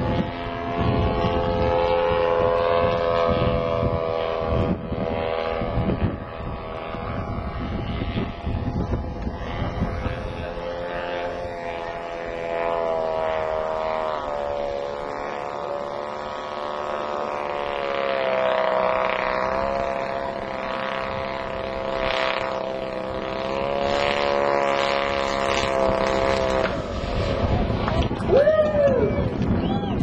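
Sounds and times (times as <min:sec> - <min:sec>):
model airplane engines droning: 0:00.0 - 0:30.0.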